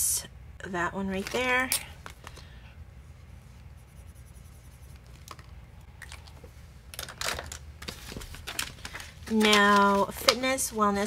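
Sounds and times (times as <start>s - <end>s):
paper rustling: 1.2s - 2.4s, 7.0s - 10.8s
marker scribbling on paper: 3.6s - 5.2s.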